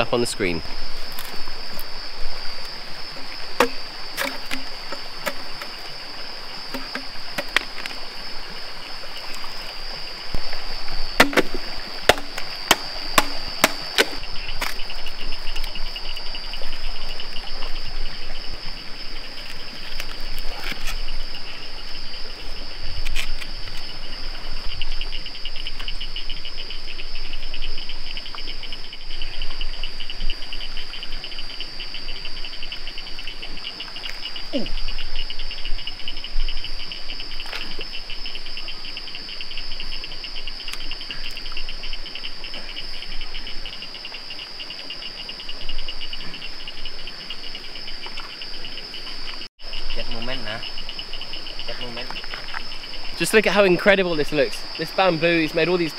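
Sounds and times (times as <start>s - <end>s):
insect fast pulsing trill: 0.0s - 55.9s
insects high buzz: 0.0s - 55.9s
sharp knocks: 3.6s - 5.4s, 11.2s - 14.2s.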